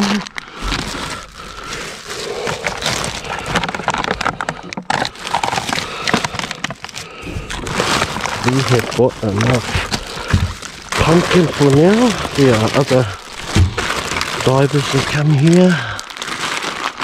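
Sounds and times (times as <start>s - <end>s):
rustling packaging: 0.0s - 17.0s
knocks and cracks of items: 9.3s - 14.4s.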